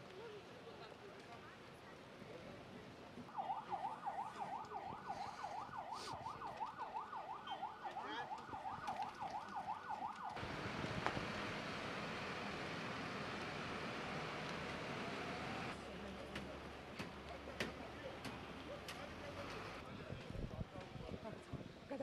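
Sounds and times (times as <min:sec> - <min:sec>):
siren yelping: 0:03.3 - 0:10.4.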